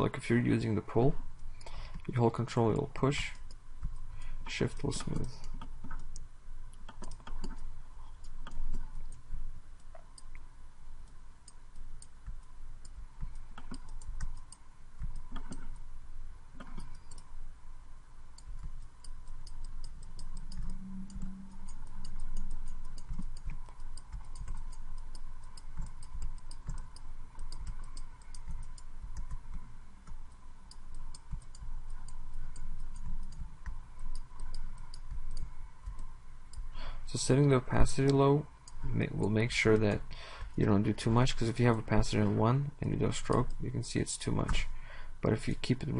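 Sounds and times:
faint steady hum: 0.0 - 45.9
mouse and keyboard clicks: 3.4 - 9.2, 11.8 - 15.8, 18.4 - 36.7.

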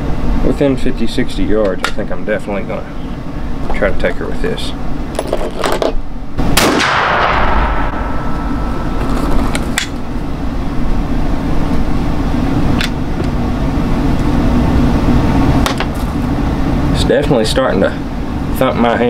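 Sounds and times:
droning noise with low hum: 0.0 - 19.0.

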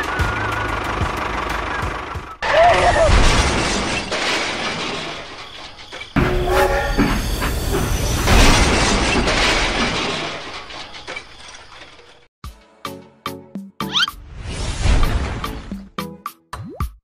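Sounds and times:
train running noise: 0.0 - 3.1, 4.0 - 12.3.

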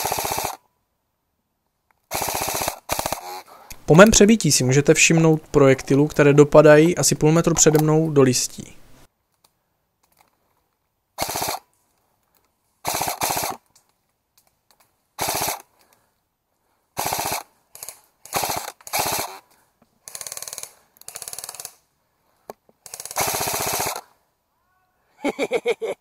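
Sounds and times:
airsoft rifle full-auto bursts: 0.0 - 0.6, 2.1 - 3.5, 11.2 - 11.7, 12.8 - 13.6, 15.2 - 15.7, 17.0 - 19.4, 20.0 - 21.8, 22.8 - 24.1.

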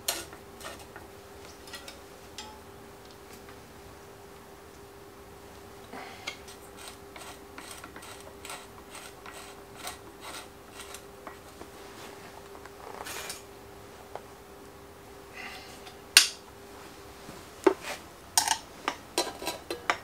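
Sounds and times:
short scraping rub: 6.5 - 13.4.

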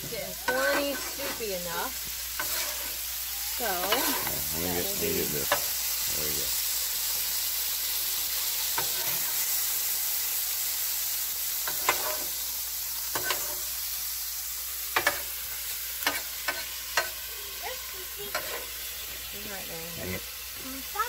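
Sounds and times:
meat sizzling on a griddle: 0.0 - 21.0
metal spatulas scraping griddle: 0.4 - 5.6, 8.8 - 9.4, 11.6 - 12.4, 13.1 - 13.8, 15.0 - 15.4, 16.0 - 17.2, 18.3 - 18.7.

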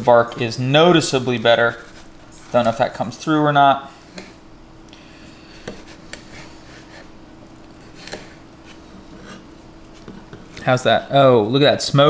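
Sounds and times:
faint steady hum: 0.0 - 12.0
knife cutting on cutting board: 7.8 - 9.4.

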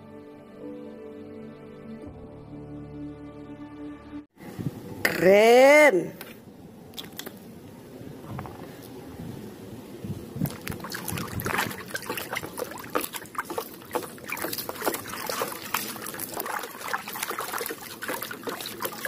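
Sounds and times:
water splashing: 6.9 - 7.5, 10.2 - 19.0
scrubbing toy in water: 10.4 - 19.0.

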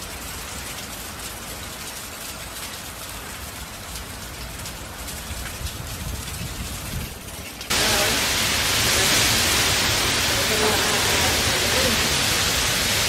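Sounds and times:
heavy rain and wind hiss: 0.0 - 13.0.

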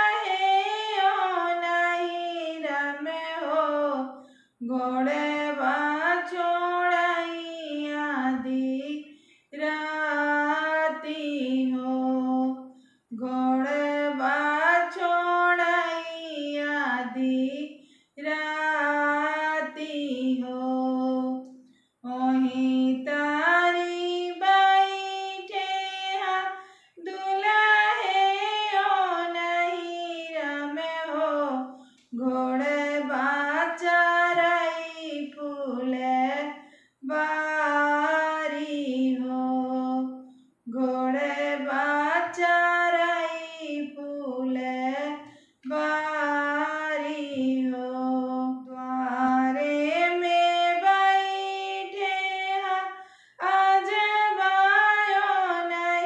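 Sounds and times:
woman singing unaccompanied: 0.0 - 56.0.

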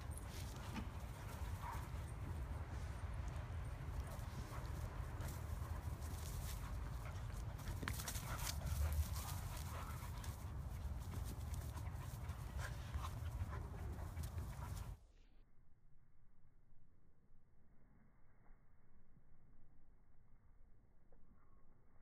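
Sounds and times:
dogs scuffling in dry grass: 0.0 - 15.0.

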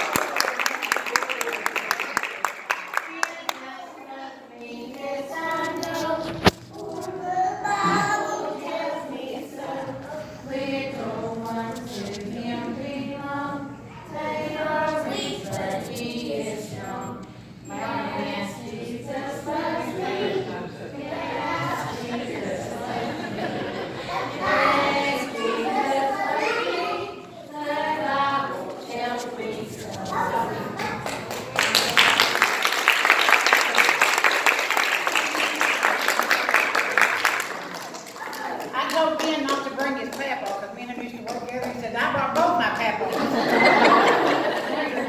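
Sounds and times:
people applauding: 0.0 - 3.6, 30.8 - 40.6
children singing together: 3.3 - 31.1.

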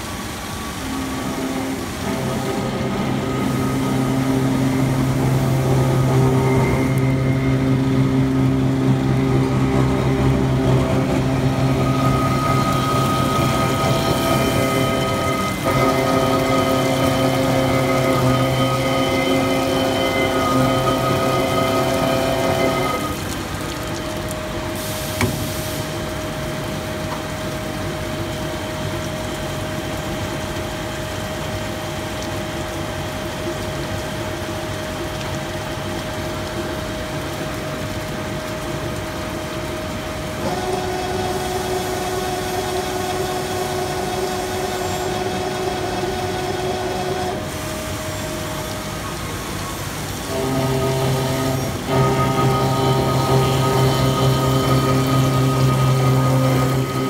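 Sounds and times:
milling machine whining: 0.0 - 26.0, 39.6 - 57.0.

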